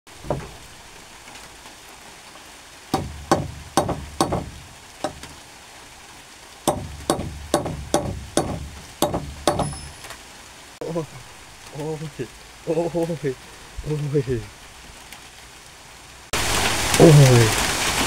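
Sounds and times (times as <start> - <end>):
hammer driving nail into wood: 3.0 - 5.4, 6.7 - 9.9.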